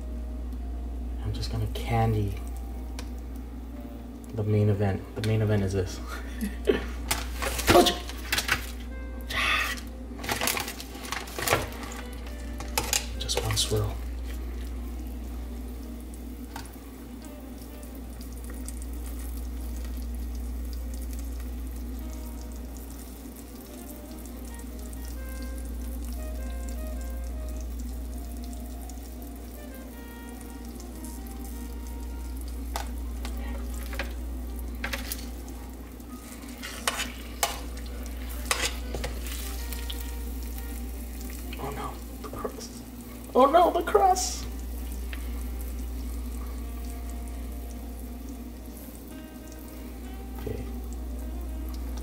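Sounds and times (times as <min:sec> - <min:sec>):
steady low hum: 0:00.0 - 0:52.0
sugar syrup sizzling and bubbling: 0:00.0 - 0:52.0
metal tongs tapping a pan: 0:36.7 - 0:37.7.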